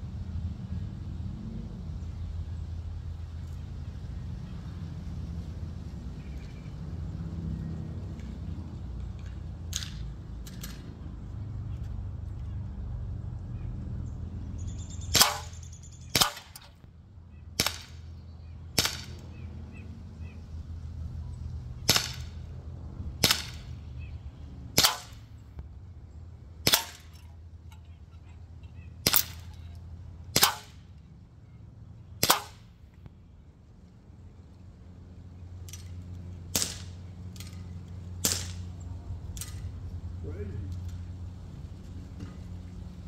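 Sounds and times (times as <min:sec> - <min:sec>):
air pistol shots: 0:15.1 - 0:16.8, 0:17.6 - 0:18.1, 0:18.8 - 0:19.2, 0:21.8 - 0:22.4, 0:23.2 - 0:23.8, 0:24.7 - 0:25.3, 0:26.6 - 0:27.2, 0:29.0 - 0:29.6, 0:30.3 - 0:30.8, 0:32.2 - 0:32.7, 0:36.5 - 0:37.6, 0:38.2 - 0:38.6.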